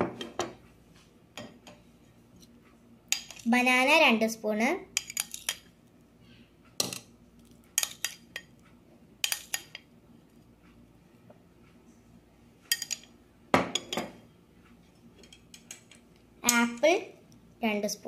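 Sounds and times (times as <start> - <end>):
metal spoon clinking on plate: 12.7 - 13.1.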